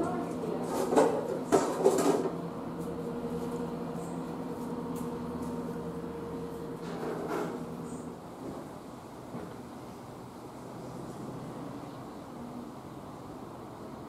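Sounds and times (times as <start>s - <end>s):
diesel train engines humming: 0.0s - 14.0s.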